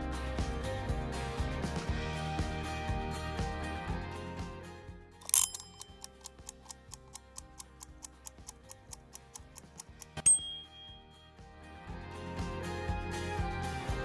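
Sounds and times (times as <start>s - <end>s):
background music: 0.0s - 14.0s
stopwatch ticking: 5.2s - 11.1s.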